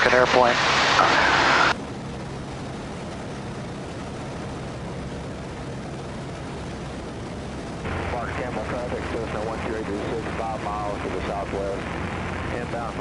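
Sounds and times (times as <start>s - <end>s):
airflow noise: 0.0s - 1.8s, 5.3s - 13.0s
light aircraft engine and propeller: 0.0s - 13.0s.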